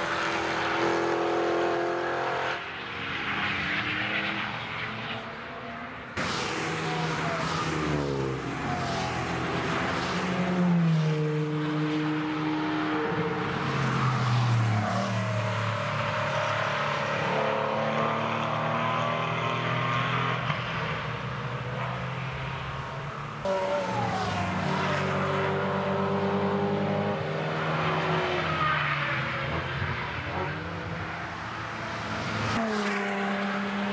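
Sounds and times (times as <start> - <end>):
car engines accelerating past: 0.0 - 33.9.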